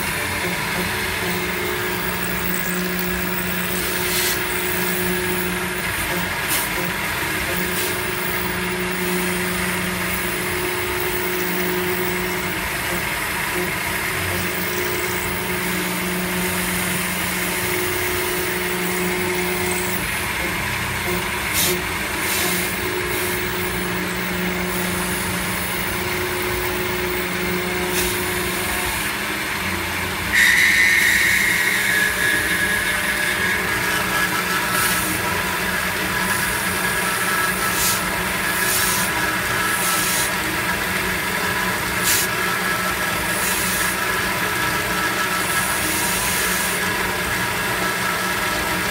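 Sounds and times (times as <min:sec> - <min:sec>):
high ringing whine: 0:00.0 - 0:48.9
milling machine cutting metal: 0:00.0 - 0:48.9
coolant hissing and spattering: 0:03.5 - 0:05.1.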